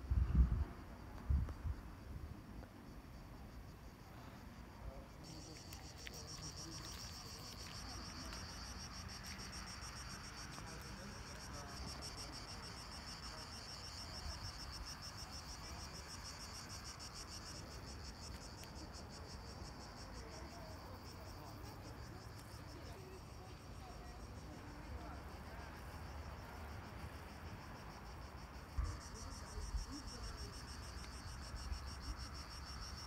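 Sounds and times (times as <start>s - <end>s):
low wind rumble: 0.0s - 2.6s
insects trilling: 5.1s - 33.0s.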